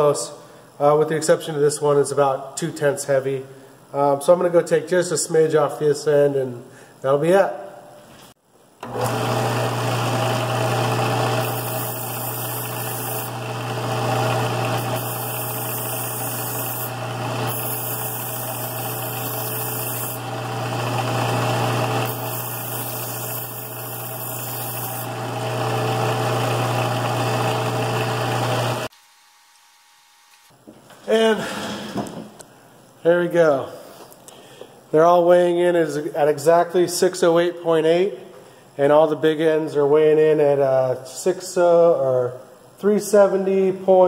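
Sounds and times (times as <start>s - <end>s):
belt sander humming: 8.8s - 30.5s
metal grinding on sander belt: 8.9s - 28.9s.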